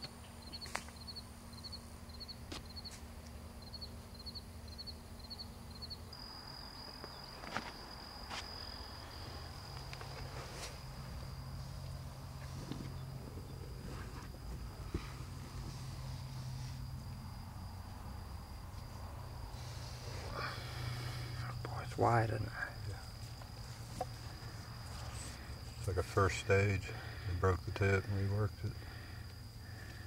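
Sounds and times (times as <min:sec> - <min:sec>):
high insect trill: 0:00.0 - 0:30.0
insects chirping: 0:00.0 - 0:30.0.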